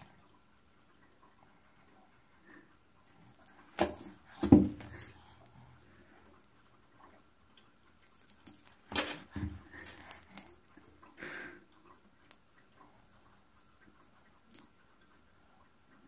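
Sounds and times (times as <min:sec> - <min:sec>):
bead necklace clicking and rattling: 0:03.0 - 0:07.3, 0:07.9 - 0:11.1, 0:12.2 - 0:14.8.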